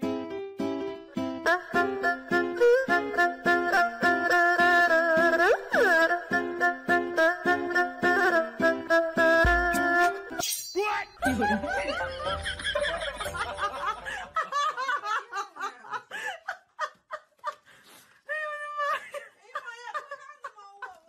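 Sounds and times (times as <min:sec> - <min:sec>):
music: 0:00.0 - 0:10.4, 0:11.3 - 0:14.0
people laughing: 0:11.2 - 0:17.6, 0:18.6 - 0:21.0.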